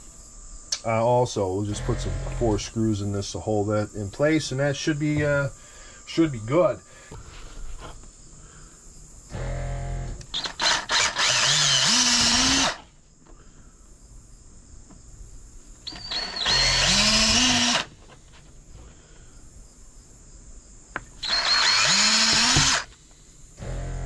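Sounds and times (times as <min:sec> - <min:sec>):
electric drill boring through plastic: 0:01.7 - 0:02.5, 0:09.3 - 0:12.9, 0:15.9 - 0:17.9, 0:21.2 - 0:23.0, 0:23.6 - 0:24.0
drill trigger blips: 0:01.7 - 0:02.6, 0:09.3 - 0:12.8, 0:15.9 - 0:17.9, 0:21.2 - 0:23.0, 0:23.6 - 0:24.0.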